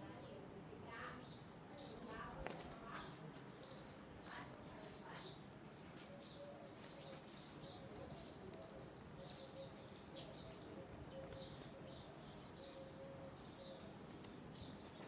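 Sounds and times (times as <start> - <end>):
squirrel chirping: 6.0 - 15.0.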